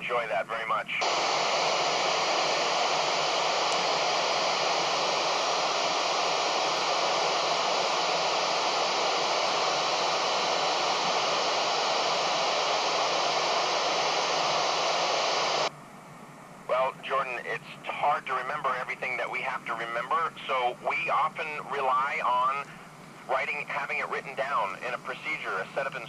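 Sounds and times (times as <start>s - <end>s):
voice transmission over radio: 0.0s - 9.9s, 16.7s - 26.0s
radio static hiss: 0.0s - 15.7s, 16.7s - 26.0s.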